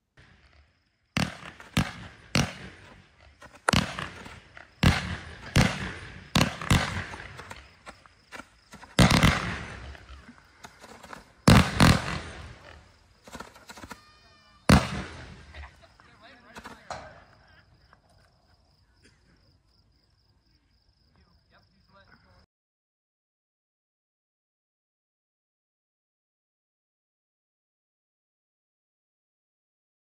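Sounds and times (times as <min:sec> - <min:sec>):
firework cake reports: 0:01.2 - 0:17.8.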